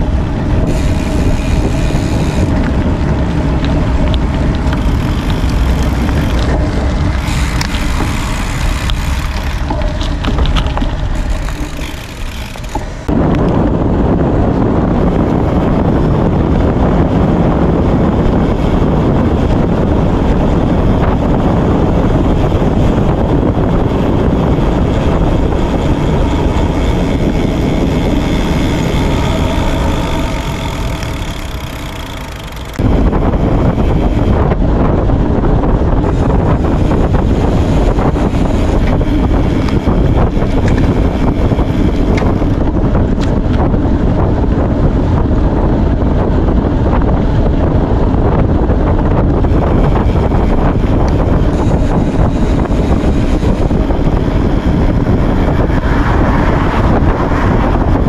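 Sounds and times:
steady whine: 0.0 - 58.0
wind buffeting microphone: 0.0 - 58.0.

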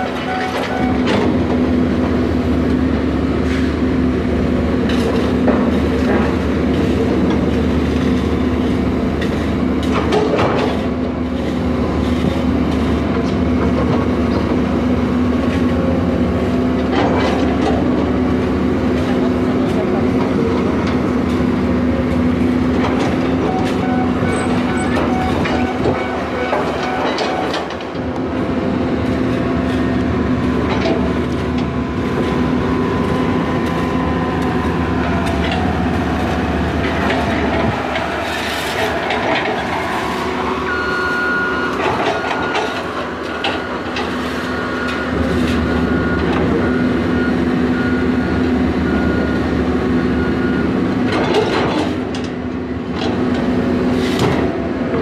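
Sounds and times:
diesel engines running: 0.0 - 55.0
bucket scraping on asphalt: 29.0 - 46.0
short high beep: 40.6 - 42.8.

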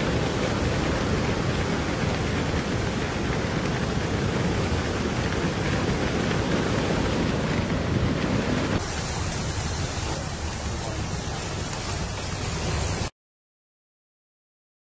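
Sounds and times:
floodwater rushing: 0.0 - 13.1
heavy rain downpour: 0.0 - 13.1.

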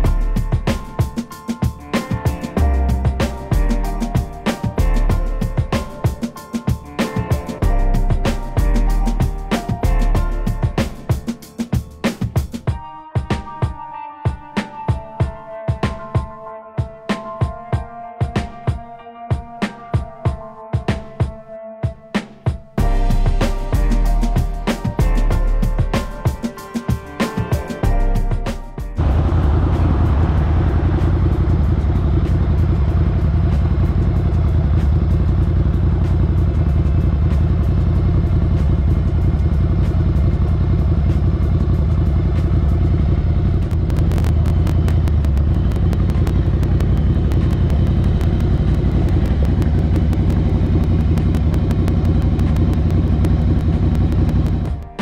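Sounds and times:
motorcycle engine idling: 28.9 - 54.9.

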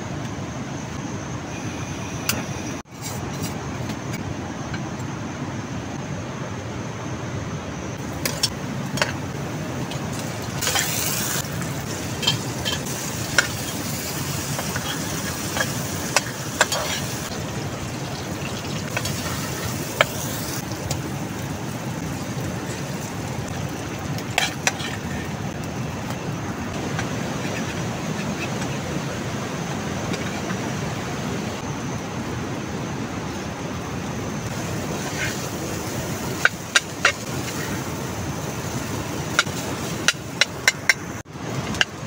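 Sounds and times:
steady rushing noise: 0.0 - 42.0
vegetables sizzling in oil: 8.0 - 31.3, 34.4 - 42.0
spatula scraping pan: 12.1 - 17.4, 24.2 - 25.4.

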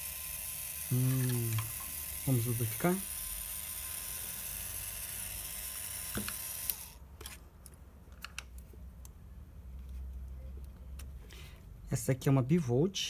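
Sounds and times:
small electric motor running: 0.0 - 7.0.

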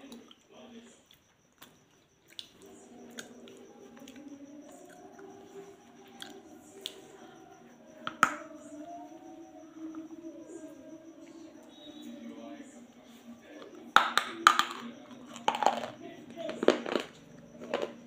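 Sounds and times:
faint steady hum: 0.0 - 18.0.

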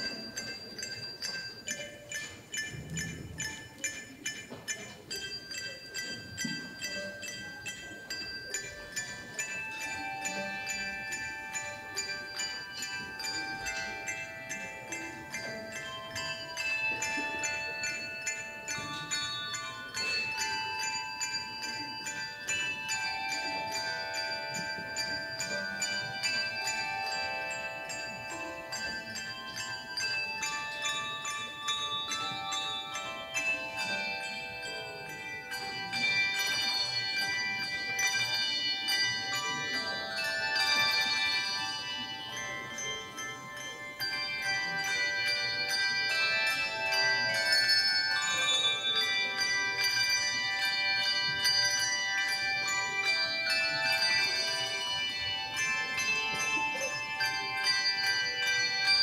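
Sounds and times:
handbell choir ringing: 0.0 - 59.0.

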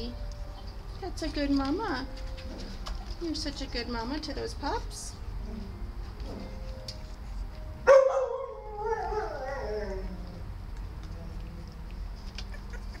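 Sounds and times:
dog yelping and whining: 7.9 - 10.4.

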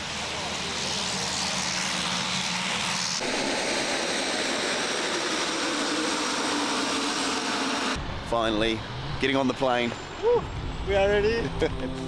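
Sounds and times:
high turbine whine: 0.0 - 8.8
turboprop engines roaring: 0.0 - 12.0.

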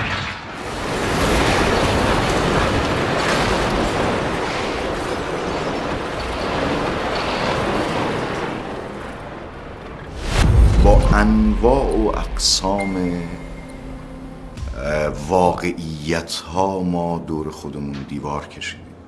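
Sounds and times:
loud rushing noise: 10.0 - 16.0.

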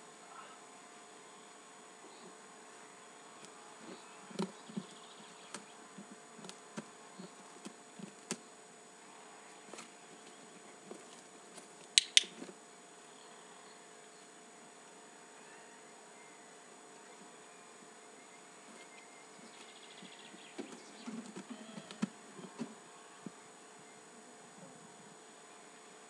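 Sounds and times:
faint steady hum: 0.0 - 26.0
training clicker clicks: 12.0 - 12.4.

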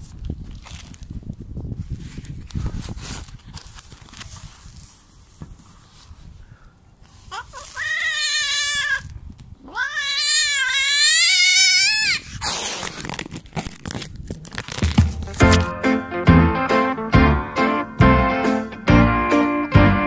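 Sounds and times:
cat yowling: 7.4 - 12.3.

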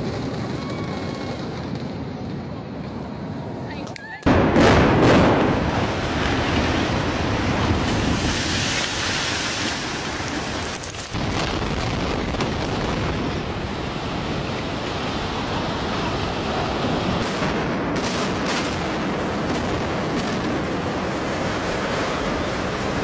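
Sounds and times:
buildings collapsing rumble: 0.0 - 3.6, 4.2 - 23.0.

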